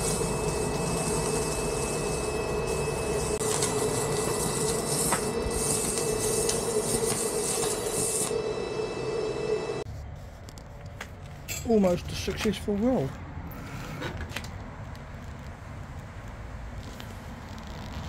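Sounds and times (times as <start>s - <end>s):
welding arc crackling: 0.0s - 9.8s
welder hum: 0.0s - 9.9s.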